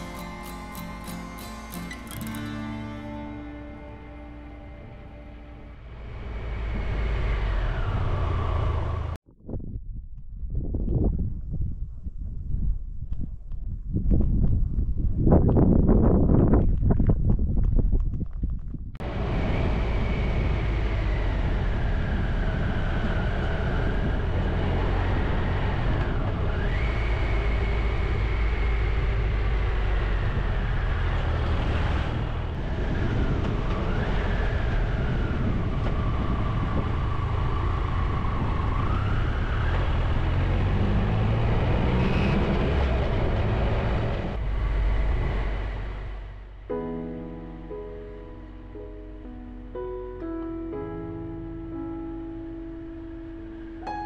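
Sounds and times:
motorcycle engine: 0:00.0 - 0:09.2, 0:19.0 - 0:46.6
wind noise: 0:00.0 - 0:46.8.

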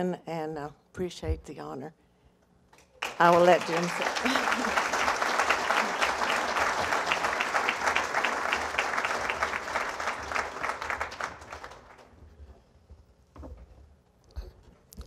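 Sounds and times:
audience applauding: 0:03.0 - 0:12.1.

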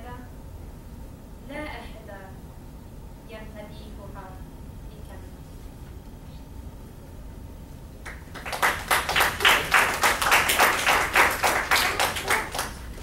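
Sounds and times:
audience applauding: 0:08.1 - 0:13.0.

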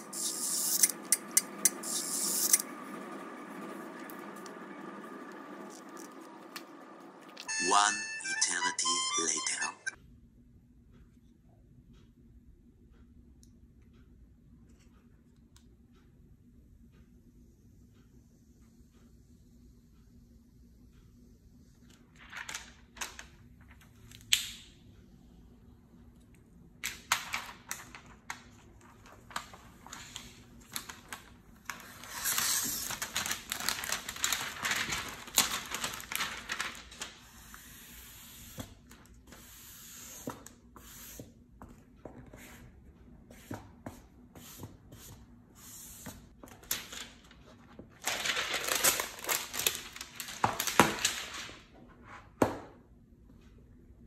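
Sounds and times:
plastic film crinkling and peeling: 0:26.8 - 0:37.4, 0:46.5 - 0:51.6.

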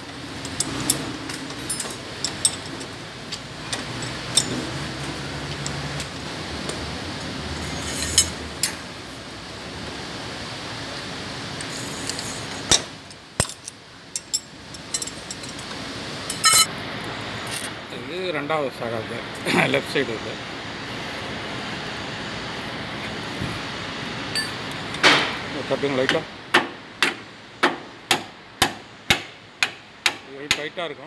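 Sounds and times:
steady low hum: 0:00.0 - 0:30.3
metal spanner and bolts clinking: 0:00.4 - 0:04.8, 0:07.6 - 0:08.8, 0:11.6 - 0:16.7, 0:24.3 - 0:24.7.

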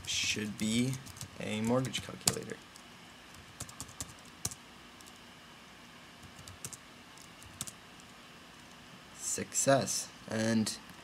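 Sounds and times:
computer keyboard keystrokes: 0:00.5 - 0:02.6, 0:03.3 - 0:05.2, 0:06.2 - 0:07.8.

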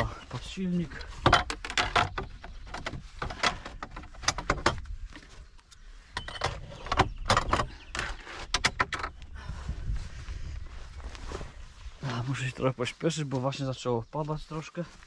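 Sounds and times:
oars knocking and clattering: 0:00.0 - 0:09.4.

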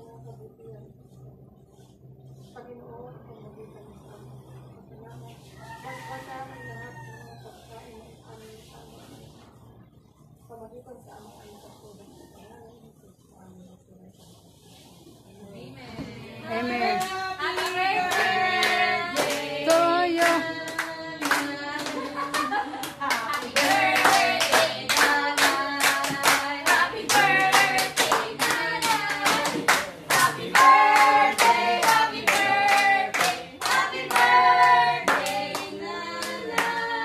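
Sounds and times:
group of people singing: 0:15.6 - 0:37.0
people clapping in time: 0:17.0 - 0:36.9.

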